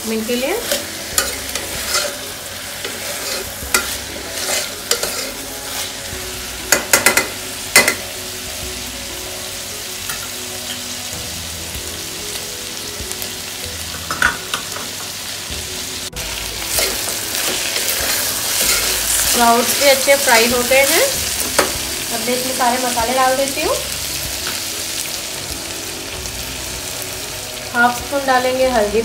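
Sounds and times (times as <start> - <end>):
vegetables sizzling in oil: 0.0 - 29.0
utensil scraping and knocking pan: 0.6 - 5.4.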